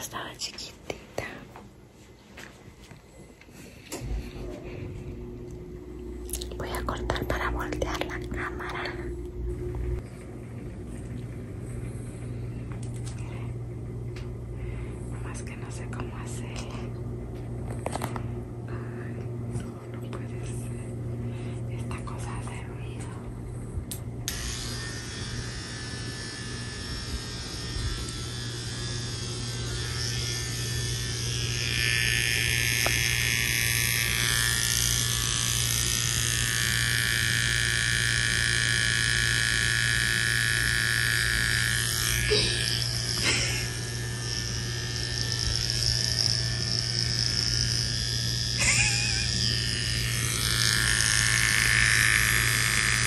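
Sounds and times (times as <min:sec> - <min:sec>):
electric hair trimmer buzzing: 0:24.2 - 0:53.0.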